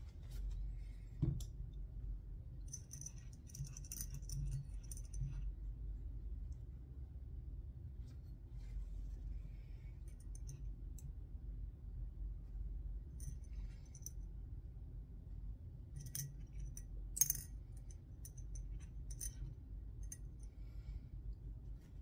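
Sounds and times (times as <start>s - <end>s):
small metal parts clinking: 16.0s - 17.5s, 18.2s - 20.3s.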